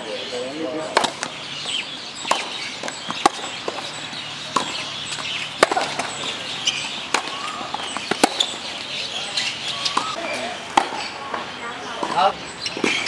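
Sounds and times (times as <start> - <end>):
faint birds chirping: 0.0 - 13.0
tennis ball hit and bouncing: 0.9 - 1.3, 2.2 - 3.9, 4.5 - 8.7, 9.4 - 13.0.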